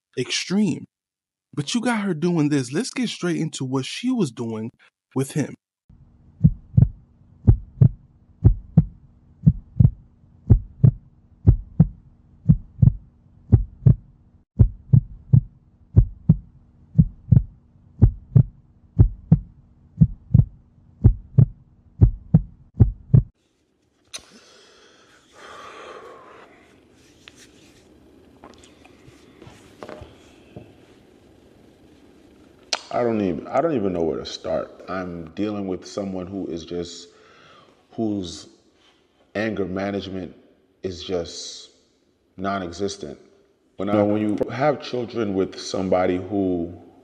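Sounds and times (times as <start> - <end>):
heartbeat thumps: 6.4 - 23.3
faint room noise: 23.4 - 47.0.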